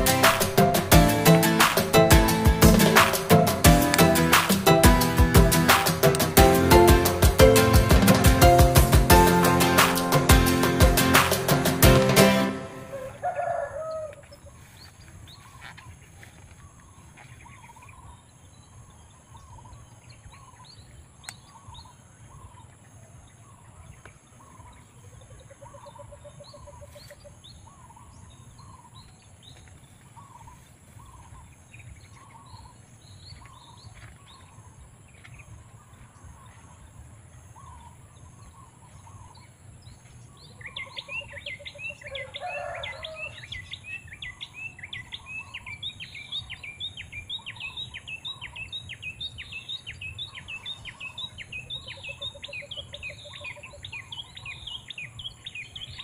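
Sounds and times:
bird trill: 40.4 - 56.0.

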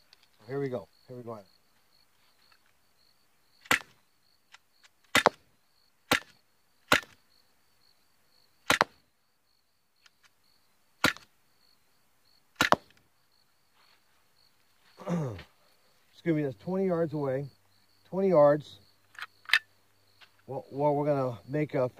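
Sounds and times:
air pistol shots: 3.6 - 4.0, 5.0 - 5.4, 6.1 - 7.2, 8.6 - 9.0, 11.0 - 11.3, 12.6 - 13.0.

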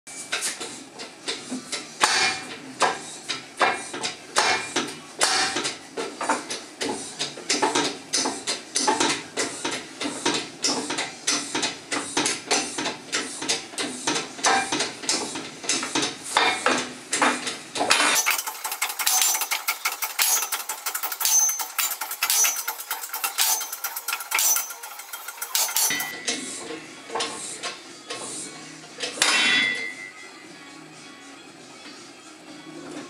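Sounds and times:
metal clacking on toothed rack: 7.5 - 26.2.

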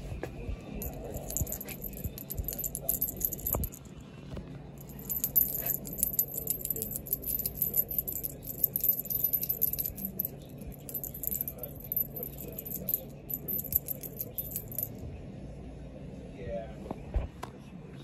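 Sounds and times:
steady low hum: 0.4 - 16.0
rapid metallic jingling: 0.8 - 3.9, 4.8 - 15.0.

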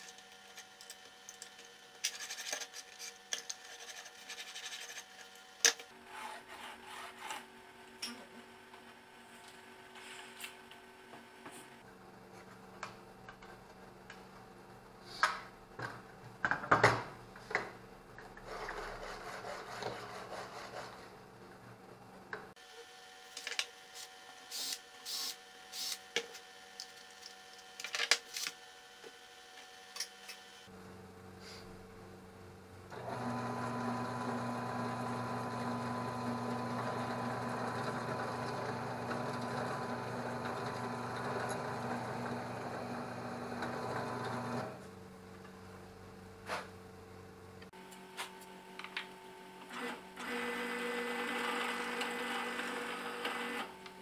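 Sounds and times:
drill press motor running: 32.9 - 44.8, 49.7 - 53.7.

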